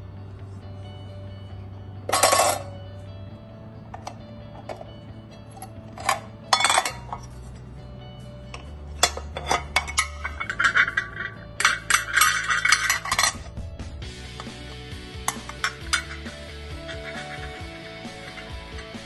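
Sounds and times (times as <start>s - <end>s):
background music: 0.0s - 19.0s
metal plate clicking and clattering: 2.1s - 2.8s, 5.9s - 7.4s, 8.6s - 13.6s, 15.2s - 19.0s.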